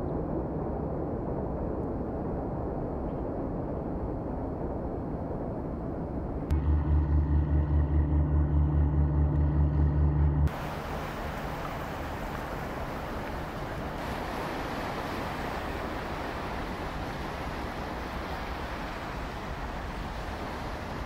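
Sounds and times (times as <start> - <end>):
steady low rumble: 0.0 - 14.2
boat engine throbbing: 6.5 - 12.0.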